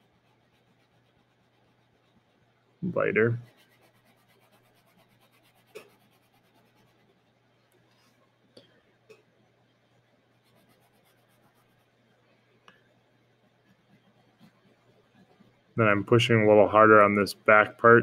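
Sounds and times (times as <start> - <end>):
crayon scratching on paper: 0.0 - 7.3, 10.3 - 12.0, 13.5 - 15.6.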